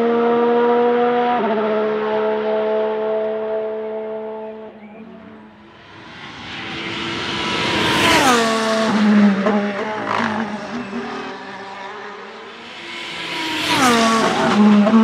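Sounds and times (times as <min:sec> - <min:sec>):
race car screaming past: 0:04.4 - 0:15.0.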